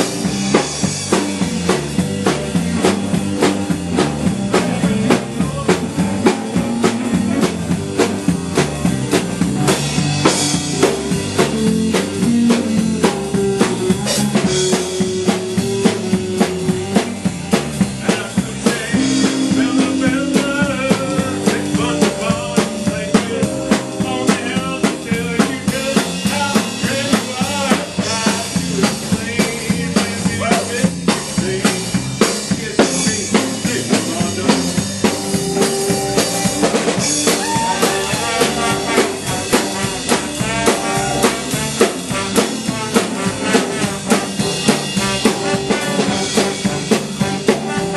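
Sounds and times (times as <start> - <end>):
drum kit beat: 0.0 - 47.9
held melody notes: 5.8 - 18.0, 18.7 - 26.8, 34.6 - 47.9.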